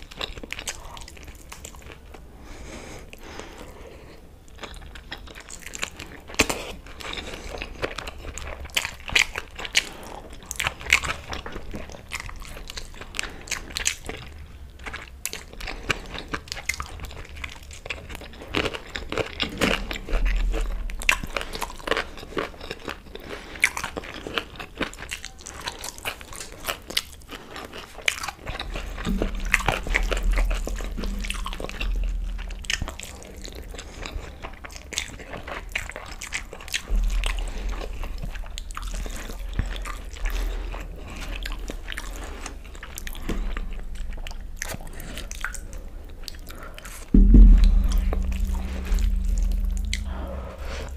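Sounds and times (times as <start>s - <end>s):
crunching and chewing: 0.0s - 50.9s
low rumble: 19.6s - 21.9s, 28.6s - 34.1s, 42.7s - 50.9s.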